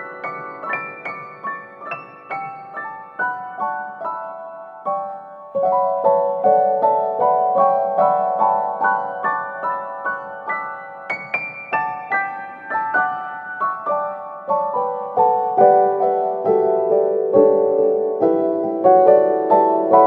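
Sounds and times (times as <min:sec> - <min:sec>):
gentle piano melody: 0:00.0 - 0:20.0.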